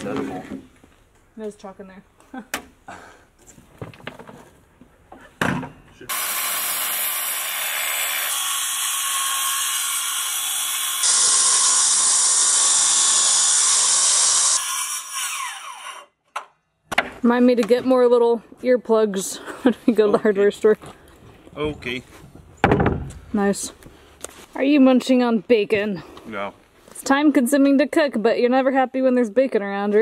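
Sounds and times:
circular saw cutting plywood: 6.1 - 16.1.

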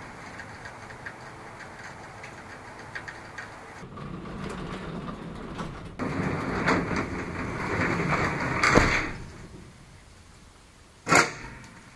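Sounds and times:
garage door rattling rumble: 0.0 - 10.0
garage door thump: 3.8 - 9.6.

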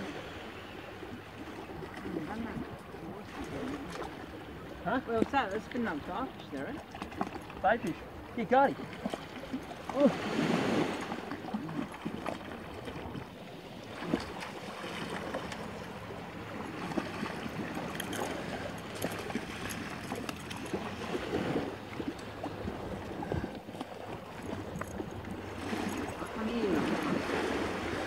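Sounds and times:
waves lapping at rocky shore: 0.0 - 28.0
wind on microphone: 20.7 - 28.0.

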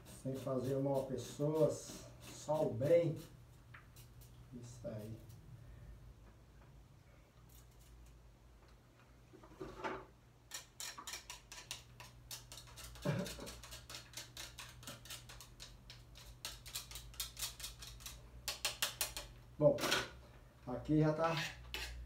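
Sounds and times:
knife cutting food: 10.5 - 19.2.

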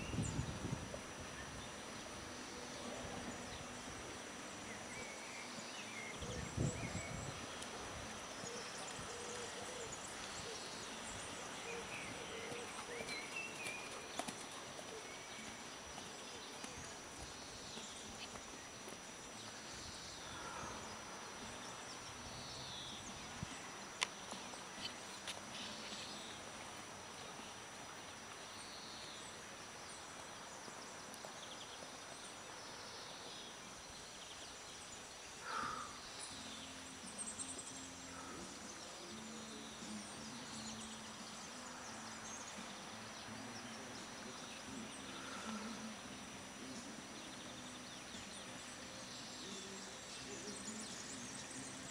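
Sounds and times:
horse hoofbeats on sand: 12.2 - 16.9.

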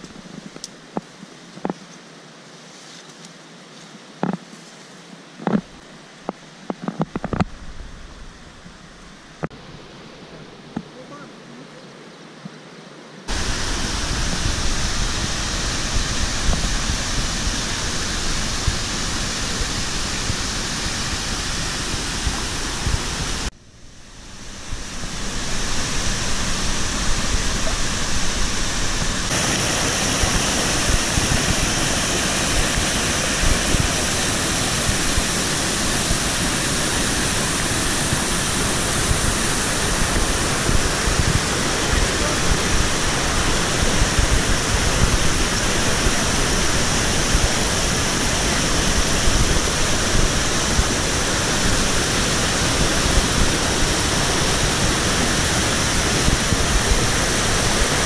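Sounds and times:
stream and waterfall rushing: 4.9 - 58.0.

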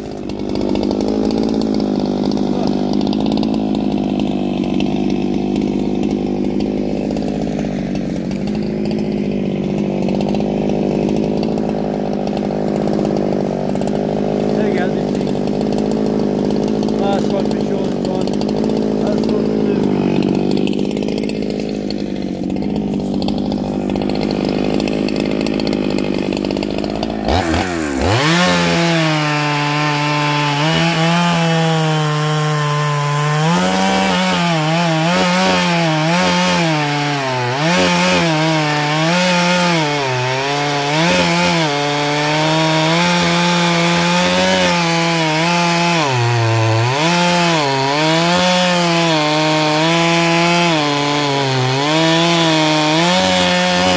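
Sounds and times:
chainsaw cutting log: 0.0 - 53.9.

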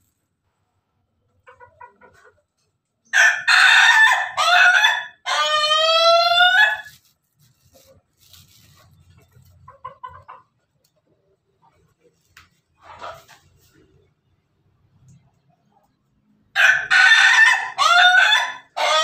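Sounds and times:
chicken clucking: 0.7 - 3.3, 7.6 - 19.0
rooster crowing: 3.2 - 6.9, 16.5 - 19.0.

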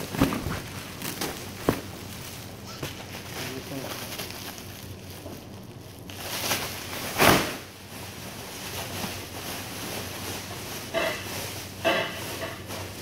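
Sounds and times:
sack flapping: 0.0 - 2.2
plastic sack rustling: 0.0 - 13.0
steady low hum: 0.0 - 13.0.

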